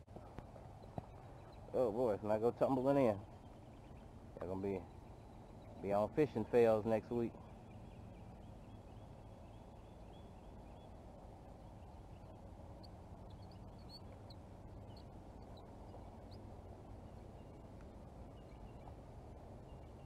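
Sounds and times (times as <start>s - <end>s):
high bird chirps: 11.8s - 16.4s.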